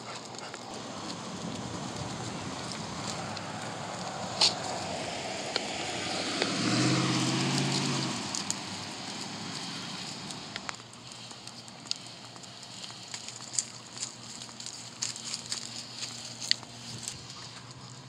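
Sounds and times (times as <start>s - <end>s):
car passing: 0.0s - 12.6s.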